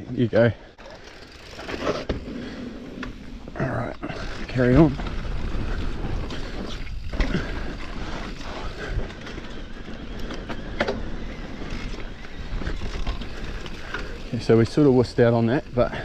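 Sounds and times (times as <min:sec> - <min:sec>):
mountain bike tyre noise: 0:00.0 - 0:16.0
bike clicks and knocks: 0:06.2 - 0:14.9.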